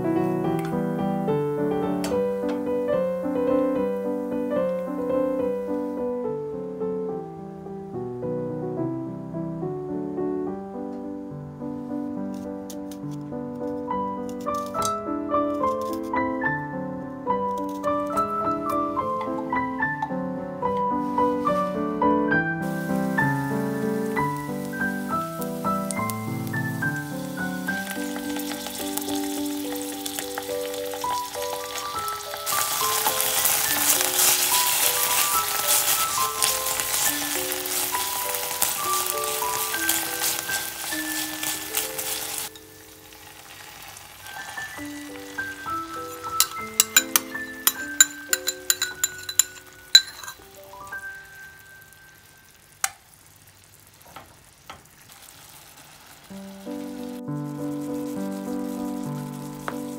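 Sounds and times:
food sizzling in oil: 0.0 - 5.9, 20.7 - 59.9
light background melody: 8.1 - 42.9, 44.4 - 52.2, 56.4 - 59.9
plucked notes background music: 17.3 - 20.9, 22.6 - 42.9, 44.6 - 51.8
wooden spoon knocking on pan: 54.0 - 54.9.

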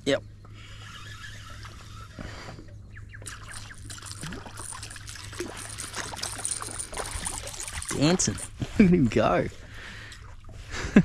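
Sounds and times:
low steady hum: 0.0 - 11.0
fish splashing in water: 3.2 - 8.7.

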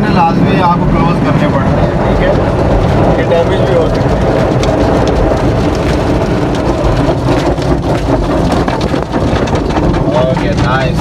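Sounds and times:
water spraying over car: 0.0 - 11.0
car wash brushes slapping: 2.4 - 11.0.

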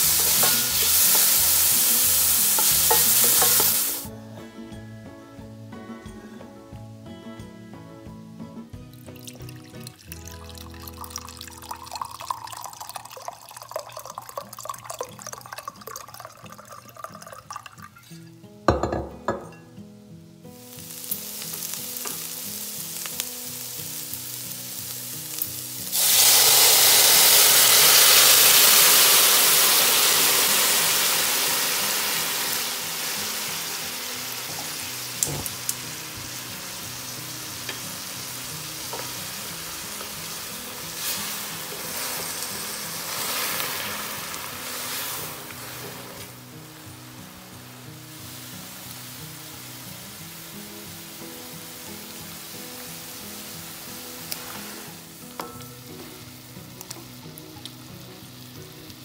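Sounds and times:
food sizzling in a pan: 0.0 - 4.2, 8.0 - 59.0
loud sizzle: 0.0 - 4.2, 6.7 - 59.0
glass clunk: 0.4 - 0.8, 18.0 - 19.8, 35.2 - 35.5, 55.4 - 55.8
liquid trickling into a glass: 9.1 - 18.1.

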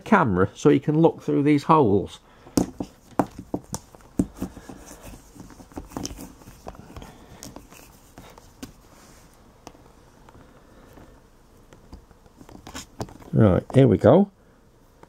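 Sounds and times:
faint rustling: 2.3 - 13.8
camera handling knocks and clicks: 2.5 - 4.8.

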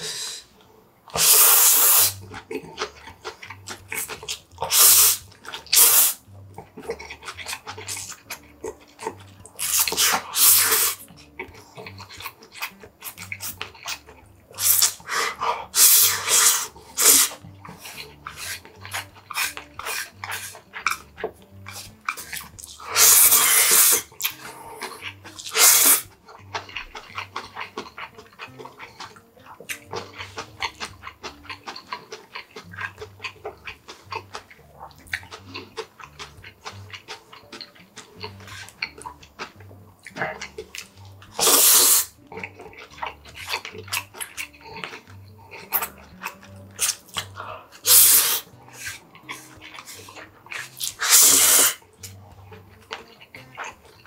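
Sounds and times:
chewing: 0.6 - 54.0
loud noodle slurps: 1.1 - 2.2, 4.0 - 6.2, 9.6 - 11.1, 14.6 - 20.6, 22.1 - 24.1, 25.4 - 26.1, 41.4 - 42.2, 47.8 - 51.8
mouth clicks: 1.1 - 54.0.

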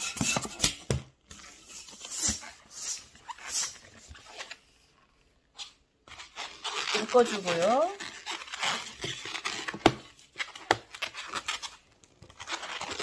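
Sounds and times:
balloon squeaking and rubbing: 0.0 - 13.0.

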